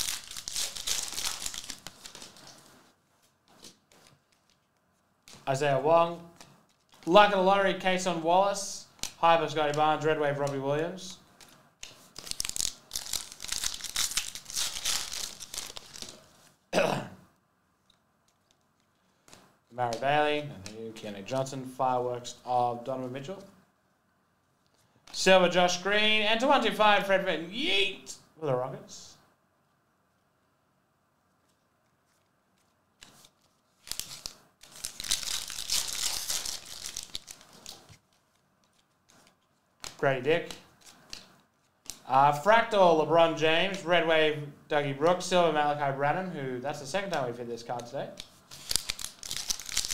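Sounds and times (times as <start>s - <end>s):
foil wrapper crinkling and tearing: 0.0s - 2.6s, 12.0s - 16.4s, 33.0s - 39.5s, 48.5s - 49.9s.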